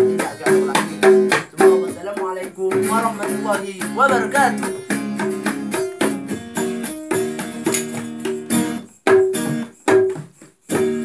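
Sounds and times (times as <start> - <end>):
acoustic guitar strumming: 0.0 - 11.0
hand drums: 0.0 - 11.0.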